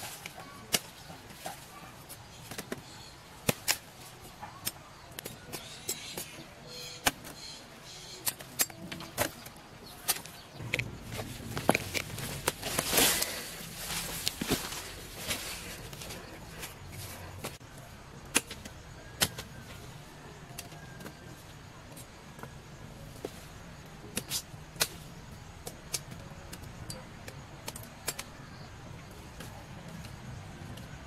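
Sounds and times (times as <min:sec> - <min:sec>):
machete chopping roots: 0:02.4 - 0:03.9, 0:18.3 - 0:19.6.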